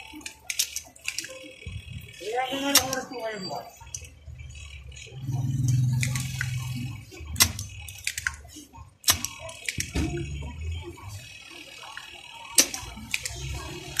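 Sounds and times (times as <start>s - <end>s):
desoldering pump clicks: 9.0s - 10.3s, 12.5s - 14.0s.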